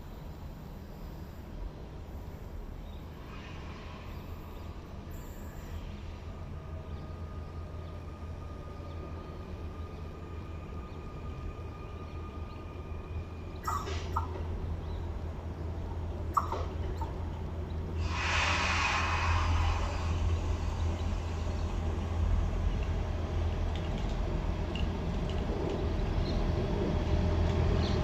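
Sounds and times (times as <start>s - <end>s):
faint even whine: 0.0s - 14.0s
electric train low rumble: 0.0s - 28.0s.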